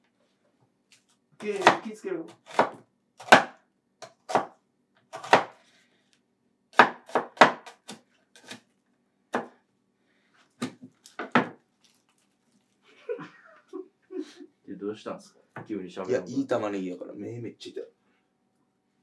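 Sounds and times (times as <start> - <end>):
knife chopping on wooden board: 1.4 - 5.6, 6.7 - 8.6, 9.3 - 9.6, 10.6 - 11.6.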